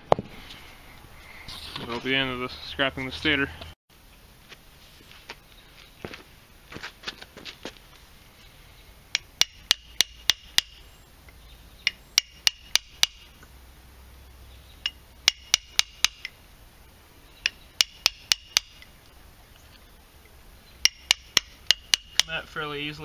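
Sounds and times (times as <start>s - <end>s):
hammer striking steel punch: 11.9s - 13.3s, 14.8s - 16.3s, 20.8s - 22.3s.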